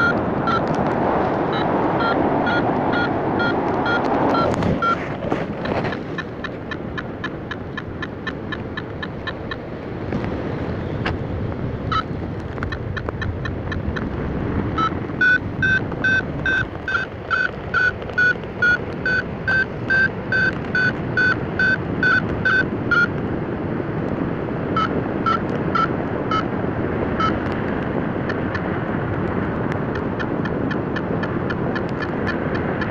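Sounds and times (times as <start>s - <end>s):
wind on microphone: 0.0s - 19.0s.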